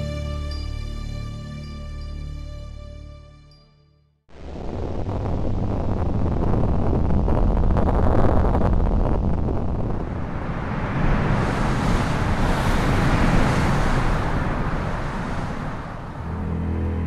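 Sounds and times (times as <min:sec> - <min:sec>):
deep rumbling with rushing hiss: 0:04.4 - 0:17.0
low dark music drone: 0:16.3 - 0:17.0.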